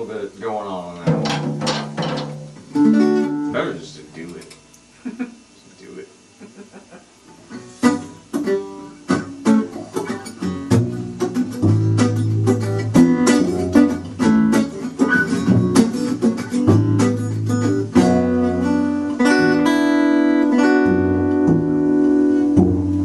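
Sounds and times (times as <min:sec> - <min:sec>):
plucked double bass: 0:01.0 - 0:03.5, 0:09.3 - 0:23.0
acoustic guitar strumming: 0:01.0 - 0:04.4, 0:07.4 - 0:23.0.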